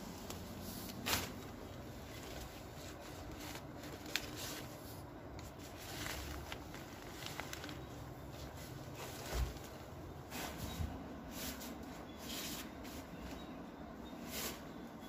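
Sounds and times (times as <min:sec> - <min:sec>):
tent fabric rustling: 0:00.0 - 0:04.8, 0:05.4 - 0:10.7.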